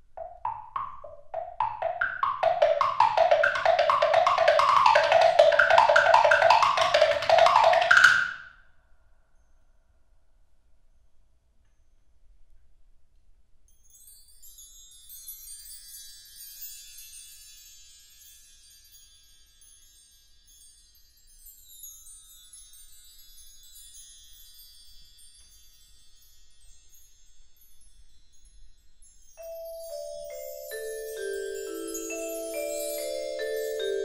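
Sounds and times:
mallet notes on keyboard percussion: 0:00.0 - 0:08.4, 0:29.4 - 0:34.0
bar chimes tinkling: 0:13.9 - 0:34.0.

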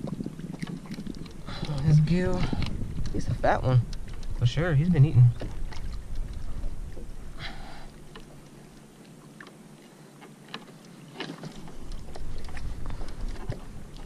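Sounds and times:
low background rumble: 0:00.0 - 0:09.1.

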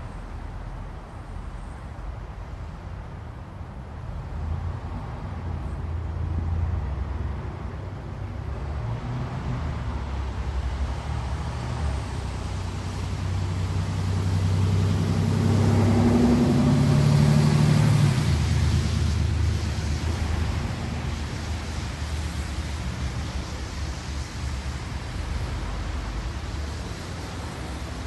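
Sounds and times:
road and traffic noise: 0:00.0 - 0:28.0
bus engine running: 0:09.8 - 0:28.0.

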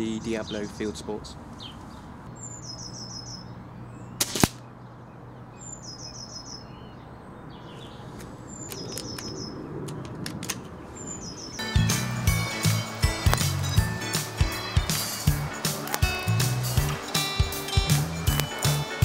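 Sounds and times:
birds chirping: 0:00.0 - 0:19.0
air rifle shot: 0:04.2 - 0:04.7
music: 0:11.6 - 0:19.0.

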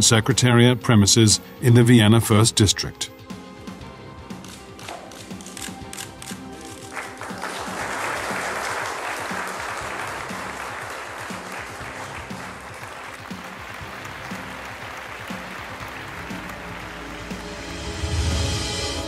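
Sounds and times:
background music with steady beat: 0:00.0 - 0:19.0
applause: 0:06.7 - 0:17.9.

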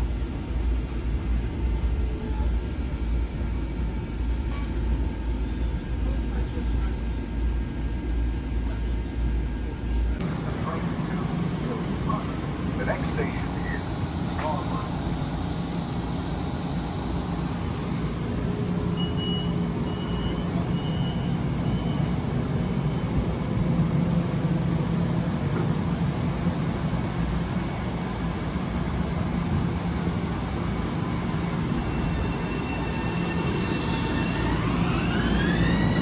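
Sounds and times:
electric train rumble and hum: 0:00.0 - 0:36.0
traction motor whine rising: 0:10.2 - 0:19.2, 0:28.0 - 0:36.0.

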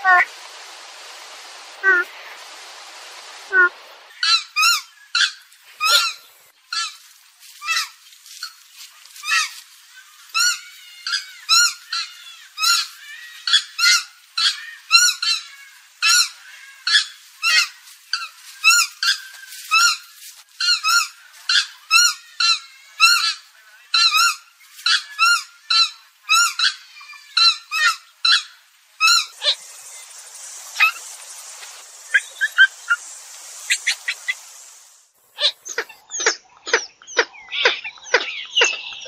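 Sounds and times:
gallinule calling: 0:24.0 - 0:34.8.

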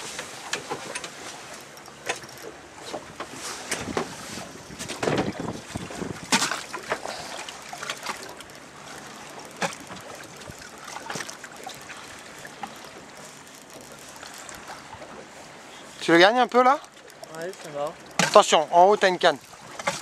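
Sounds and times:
sea water lapping around boat: 0:00.0 - 0:20.0
sharp water splashes: 0:00.0 - 0:20.0.

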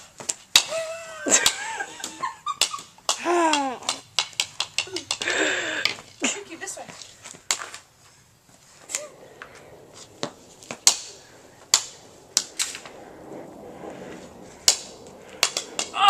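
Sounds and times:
ball taps on concrete: 0:02.6 - 0:06.1.

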